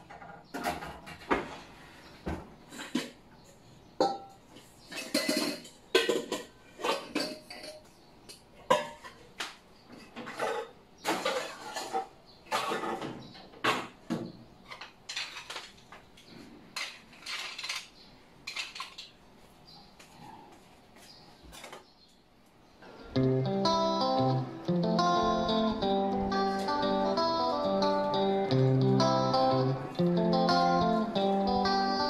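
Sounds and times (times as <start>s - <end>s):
metal bowls and utensils clattering: 2.7s - 3.2s, 4.0s - 9.4s, 10.0s - 13.9s, 14.7s - 15.8s, 16.7s - 19.2s.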